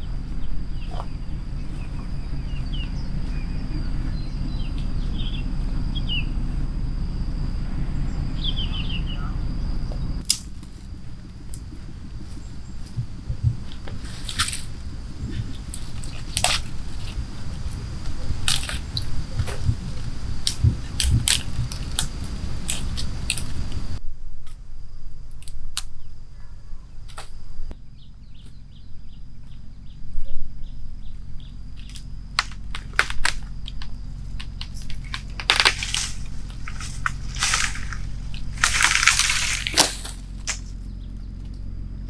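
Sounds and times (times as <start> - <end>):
dry twigs snapping: 10.2 - 24.6, 25.4 - 26.0, 31.8 - 41.6
branch dragged through grass: 13.6 - 23.8, 34.3 - 40.8.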